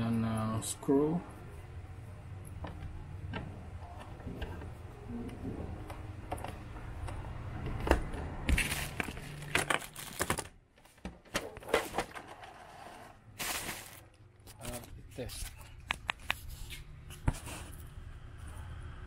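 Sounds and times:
rustling handling noise: 8.5 - 12.3, 13.3 - 17.8.

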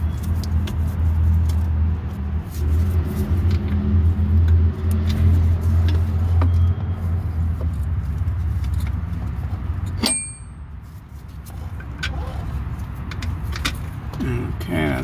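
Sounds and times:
metallic clink ringing: 10.0 - 10.6.

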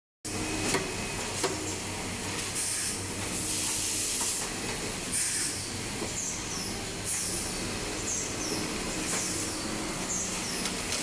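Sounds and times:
sewing machines humming: 1.0 - 11.0
compressed air hissing: 5.1 - 5.6.

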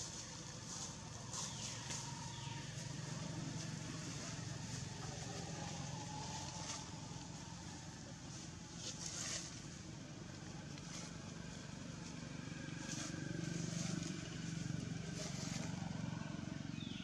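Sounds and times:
motor engine droning: 0.0 - 17.0.

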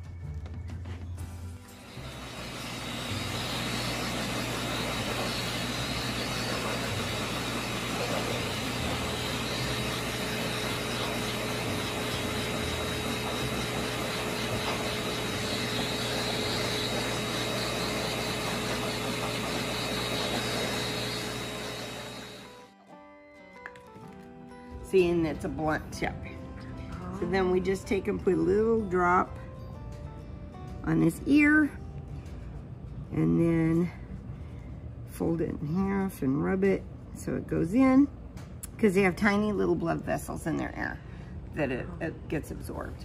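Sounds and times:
motor whine: 1.6 - 22.7
pet dryer blowing air: 1.7 - 22.7.

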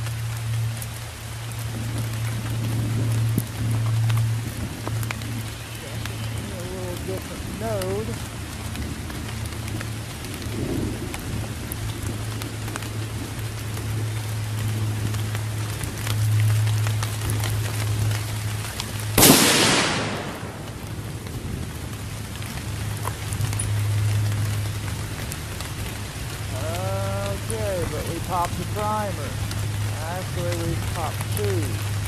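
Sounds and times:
low steady hum: 0.0 - 32.0
steady rain falling: 0.0 - 32.0
rifle shot: 19.2 - 20.8.

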